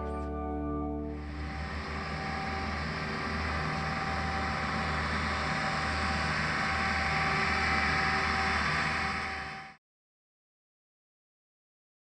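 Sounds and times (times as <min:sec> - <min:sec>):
travel lift engine running: 0:01.1 - 0:09.8
steady hiss: 0:01.2 - 0:09.8.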